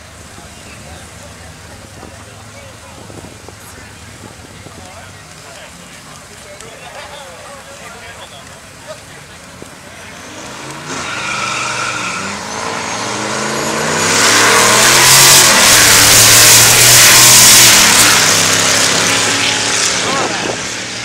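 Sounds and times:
cars accelerating hard: 9.8s - 21.0s.

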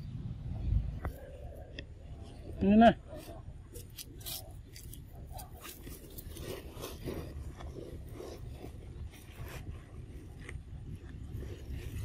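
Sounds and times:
dry leaves rustling and crunching: 3.7s - 10.5s.

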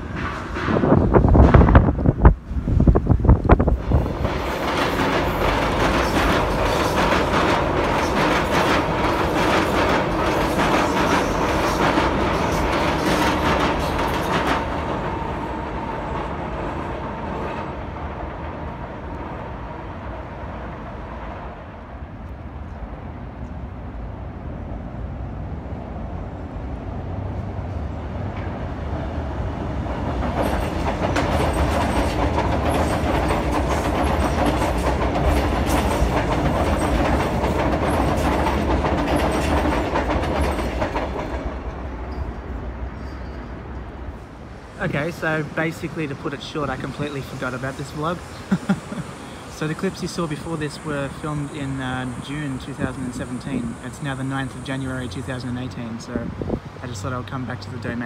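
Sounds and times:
electric train running: 3.6s - 17.6s, 30.0s - 41.6s.

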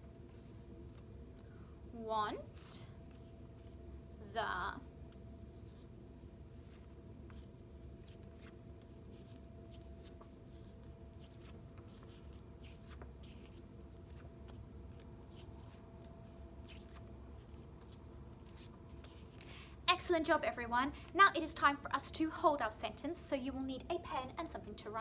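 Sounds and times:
faint hum: 0.0s - 25.0s
paper cards rustling: 5.6s - 19.4s.

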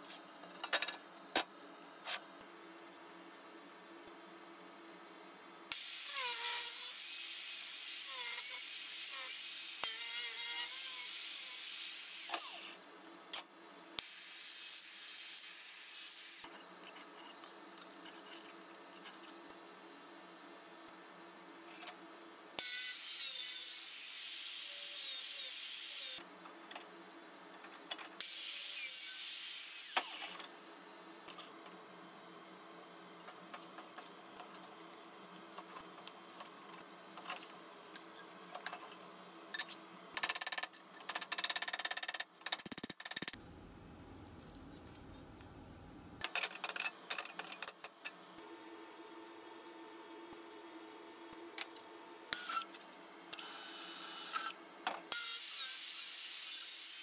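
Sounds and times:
power tool cutting sheet steel: 5.7s - 12.8s, 22.6s - 26.2s, 28.2s - 30.3s, 55.2s - 57.0s.

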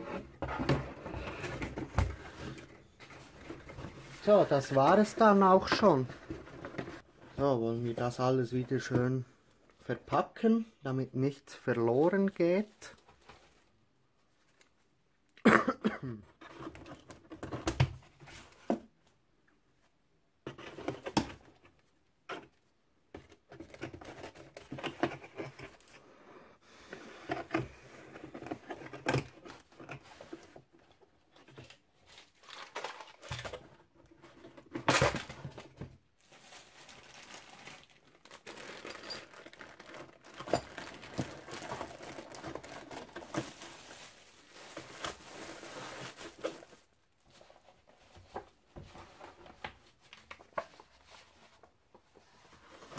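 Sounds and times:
plastic bags crinkling: 36.2s - 47.0s.

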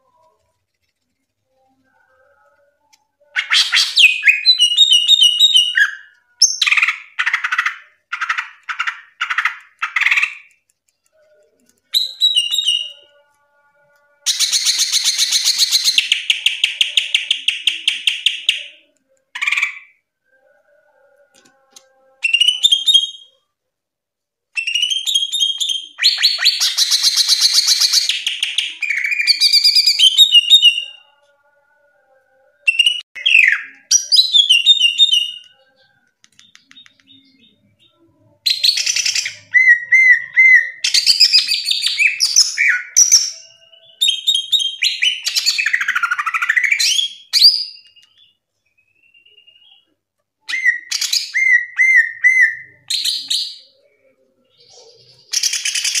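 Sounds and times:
bird singing varied song: 1.6s - 10.5s, 11.8s - 13.3s, 32.5s - 56.0s.

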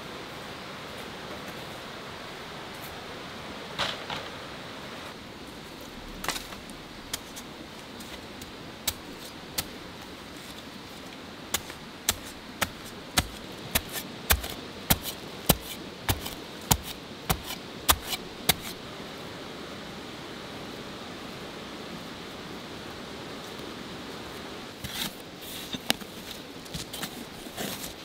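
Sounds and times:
steady background hiss: 0.0s - 28.0s
spade chopping into earth: 11.5s - 18.8s.

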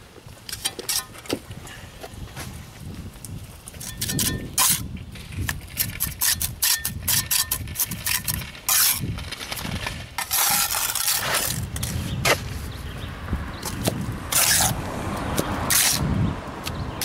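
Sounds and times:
trowel scraping mortar on bricks: 0.4s - 1.4s, 3.7s - 12.7s, 13.6s - 14.8s, 15.4s - 16.2s.

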